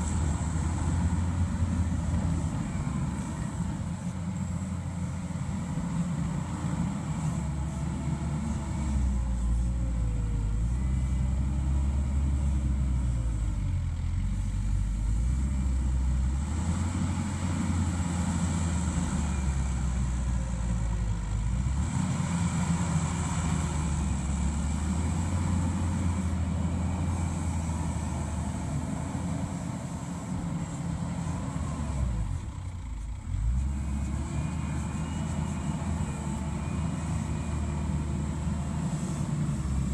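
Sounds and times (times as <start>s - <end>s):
diesel engine running hard: 0.0s - 39.9s.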